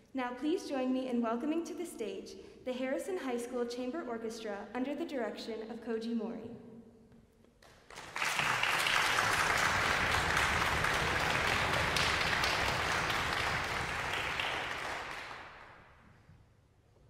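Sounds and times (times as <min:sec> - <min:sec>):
audience applause: 0:07.9 - 0:15.9.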